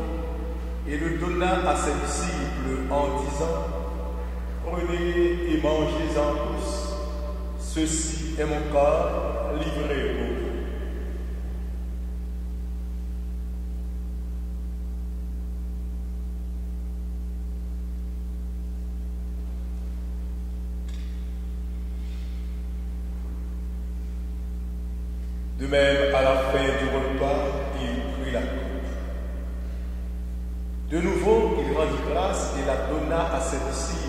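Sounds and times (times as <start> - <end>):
man speaking: 0.0 - 11.1, 25.6 - 29.2, 30.9 - 34.0
electrical mains hum: 0.0 - 34.0.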